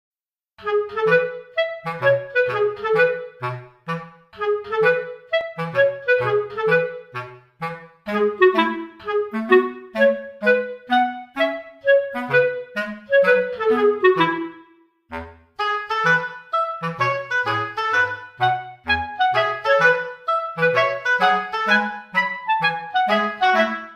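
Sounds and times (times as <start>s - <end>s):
bouncy background music: 0.6s - 23.9s.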